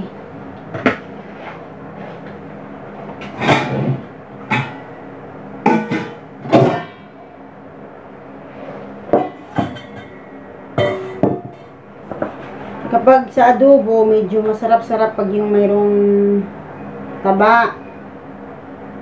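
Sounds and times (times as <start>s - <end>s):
steady low hum: 0.0s - 19.0s
metal kitchenware clanking: 3.2s - 5.0s, 5.7s - 7.1s, 9.1s - 12.4s.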